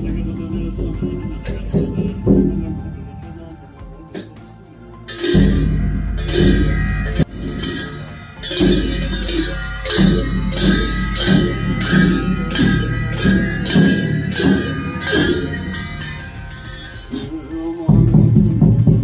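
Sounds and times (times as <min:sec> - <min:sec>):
low hum: 0:00.0 - 0:04.3, 0:04.9 - 0:19.0
frame drum struck with stick: 0:00.0 - 0:04.4, 0:05.1 - 0:19.0
sustained ringing tone: 0:05.0 - 0:18.1.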